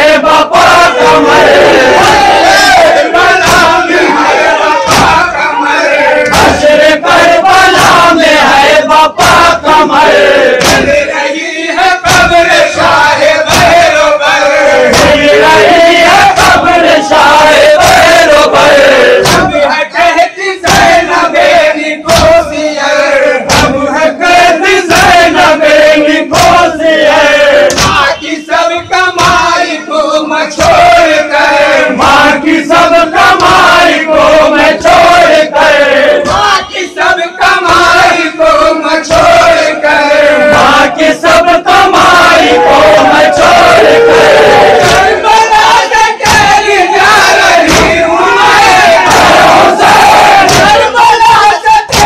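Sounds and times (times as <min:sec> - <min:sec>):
men chanting in unison: 0:00.0 - 0:52.0
chest-beating slaps: 0:01.9 - 0:05.4, 0:06.2 - 0:11.2, 0:11.8 - 0:14.0, 0:14.9 - 0:19.7, 0:20.6 - 0:22.5, 0:23.4 - 0:28.2, 0:29.1 - 0:29.7, 0:30.5 - 0:31.2, 0:32.0 - 0:36.9, 0:40.5 - 0:45.2, 0:46.2 - 0:51.0.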